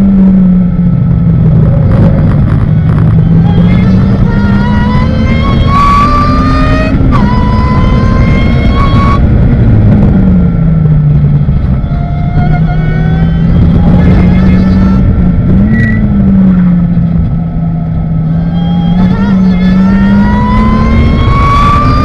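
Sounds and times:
car engine at full throttle: 0:00.0 - 0:22.0.

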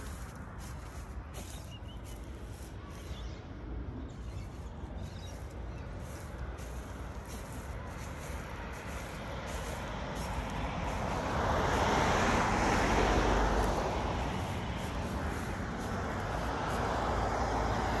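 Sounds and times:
vehicle driving past: 0:05.4 - 0:18.0.

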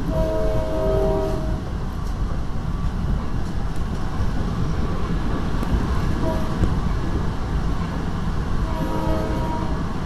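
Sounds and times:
train horn chime: 0:00.0 - 0:01.6, 0:06.2 - 0:06.7, 0:08.6 - 0:09.9
train wheels rumbling on track: 0:00.0 - 0:10.0.

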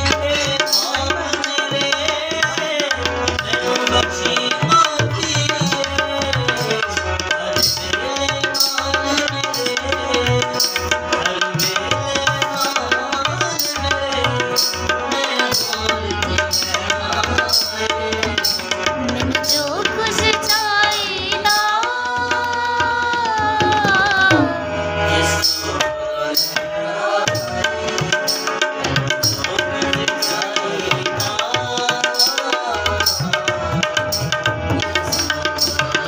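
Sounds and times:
man singing a hymn: 0:00.0 - 0:22.1, 0:28.8 - 0:33.7
harmonium: 0:00.0 - 0:36.0
hand drum beat: 0:23.2 - 0:24.6.

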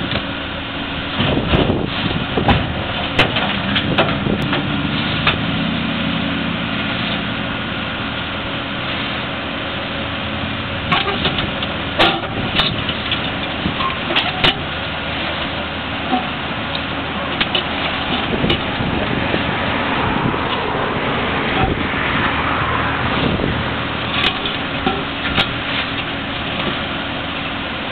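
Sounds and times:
diesel engine running: 0:00.0 - 0:27.9
bucket clanking on concrete: 0:12.0 - 0:14.7.

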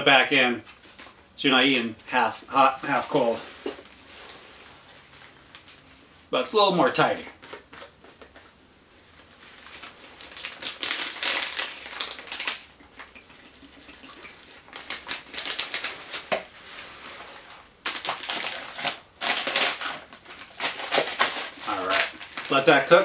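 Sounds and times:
plastic packaging crinkling: 0:09.2 - 0:23.0.

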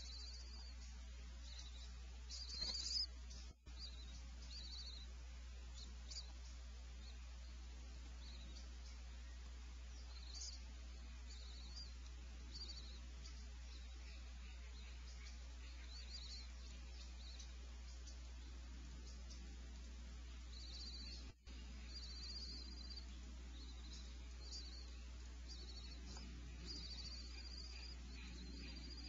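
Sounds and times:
electrical hum and hiss: 0:00.0 - 0:29.0
faint high chirps: 0:00.0 - 0:29.0.

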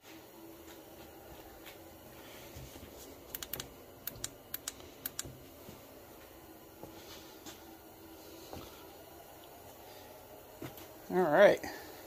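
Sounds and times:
work light clicking: 0:03.3 - 0:05.3.

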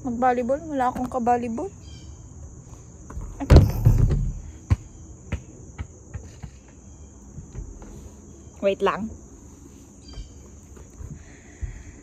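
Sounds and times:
insects chirring: 0:00.0 - 0:12.0
loud thump and rustle: 0:03.2 - 0:06.6.

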